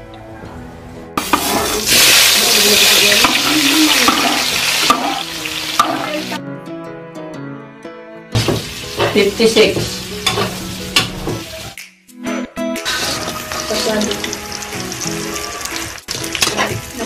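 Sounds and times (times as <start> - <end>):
food sizzling in hot oil: 1.2 - 6.4, 8.4 - 11.8, 12.8 - 17.0
soft guitar music: 3.1 - 17.0.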